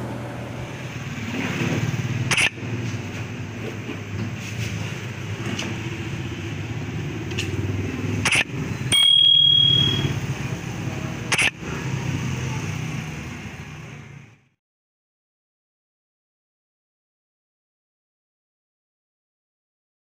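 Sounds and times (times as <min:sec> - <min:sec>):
sharp click: 0:02.3 - 0:02.6, 0:08.2 - 0:08.5, 0:11.3 - 0:11.6
bright bell ding: 0:08.9 - 0:10.2.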